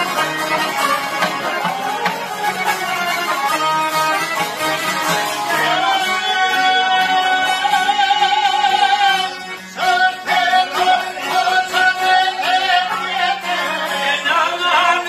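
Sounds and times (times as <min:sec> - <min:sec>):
plucked lutes: 0:00.0 - 0:15.0
man singing with vibrato: 0:04.2 - 0:15.0.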